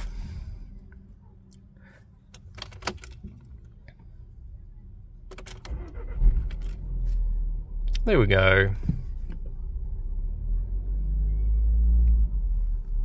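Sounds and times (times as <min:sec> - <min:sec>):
car engine cranking and humming: 0:00.0 - 0:13.0
ignition clicks and rattles: 0:02.3 - 0:04.0, 0:05.2 - 0:06.9.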